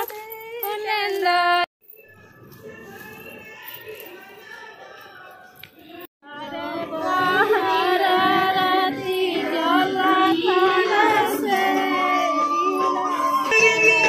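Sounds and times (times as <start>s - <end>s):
woman singing devotional song: 6.2s - 14.0s.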